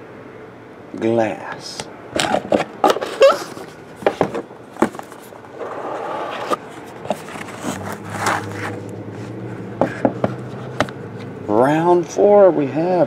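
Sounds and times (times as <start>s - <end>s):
lid scraping rub: 5.5s - 11.4s.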